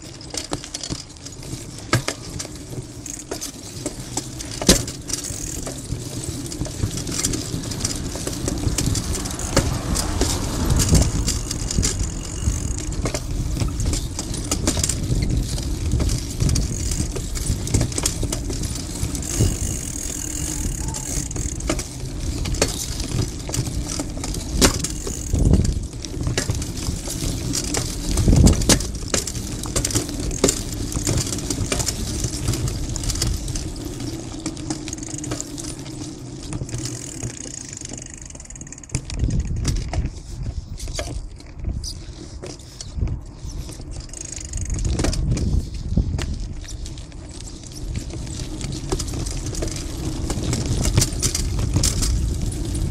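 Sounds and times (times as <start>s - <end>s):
bicycle rumbling over paving: 0.0s - 52.9s
bike clicks and rattles: 0.0s - 52.9s
heavy bike knocks: 3.1s - 5.8s, 6.6s - 33.4s.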